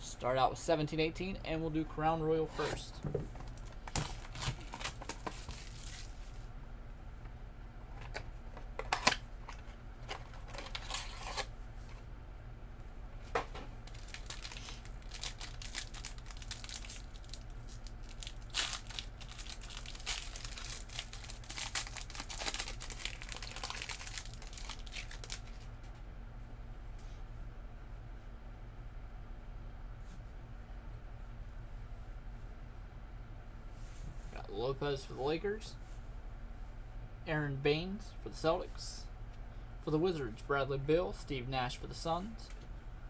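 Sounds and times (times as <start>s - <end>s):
low steady hum: 0.0s - 43.0s
foil wrappers tearing and crinkling: 3.5s - 6.2s, 10.0s - 11.5s, 13.8s - 25.7s.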